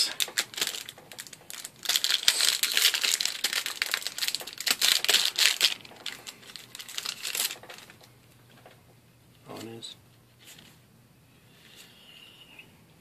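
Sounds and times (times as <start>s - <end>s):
foil wrapper crinkling and tearing: 0.0s - 8.0s.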